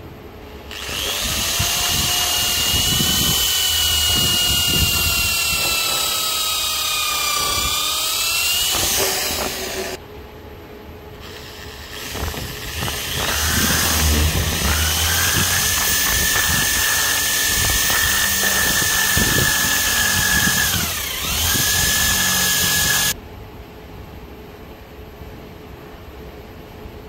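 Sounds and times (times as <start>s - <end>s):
power drill boring into wood: 0.7s - 10.0s, 11.2s - 23.2s.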